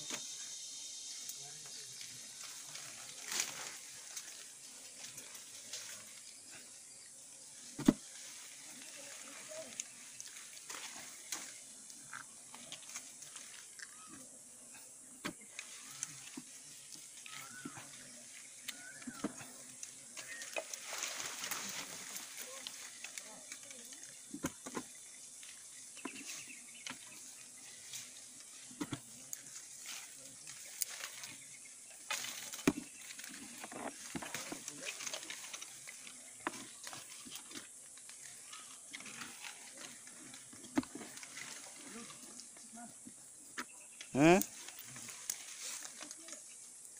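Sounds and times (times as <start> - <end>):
faint high hiss: 0.0 - 19.0.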